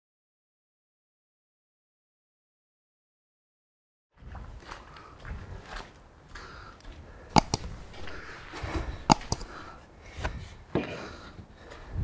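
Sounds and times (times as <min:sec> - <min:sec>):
footsteps through wet grass: 0:04.2 - 0:06.1.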